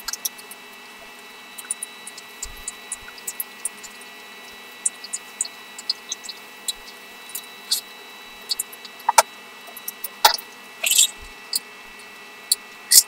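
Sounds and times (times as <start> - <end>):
faint high whine: 0.0 - 13.0.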